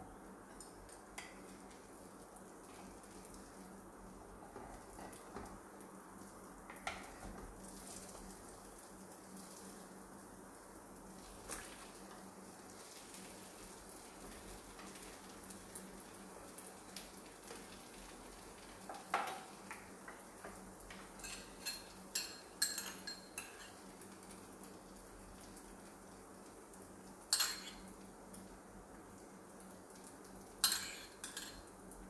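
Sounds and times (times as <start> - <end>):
faint frying: 0.0 - 32.0
utensils clinking against pan: 21.1 - 23.8, 27.3 - 27.9, 30.6 - 31.6.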